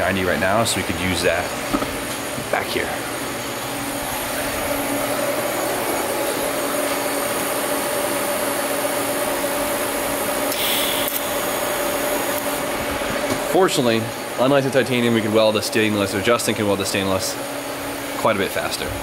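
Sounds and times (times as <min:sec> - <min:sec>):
mechanical shop hum: 0:00.0 - 0:19.0
welding arc hiss: 0:08.9 - 0:14.8.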